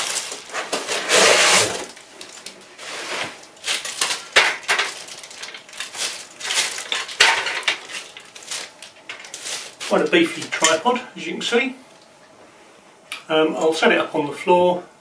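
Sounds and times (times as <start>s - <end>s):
plastic wrapping crinkling: 0.0s - 10.9s.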